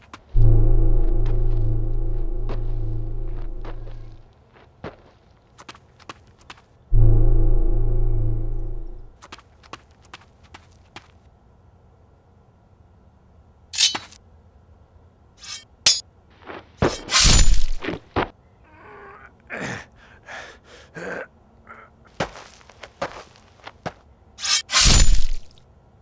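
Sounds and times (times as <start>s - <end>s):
loud crash: 0.4s - 4.2s, 6.9s - 9.1s
sword strikes: 15.4s - 16.0s, 16.8s - 17.8s, 24.4s - 25.5s.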